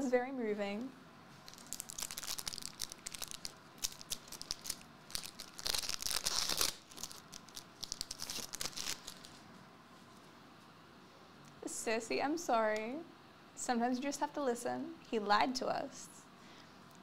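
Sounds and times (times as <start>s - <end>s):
foil wrapper crinkling: 1.5s - 9.4s.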